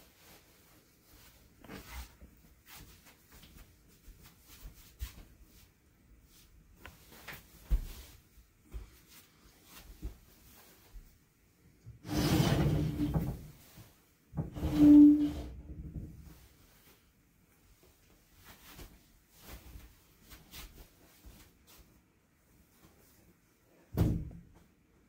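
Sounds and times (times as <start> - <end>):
clothing rustle: 0.0 - 11.4, 16.2 - 23.9
soft footsteps on mats: 0.1 - 11.4
wooden sliding door sliding: 12.0 - 13.5, 14.4 - 15.9.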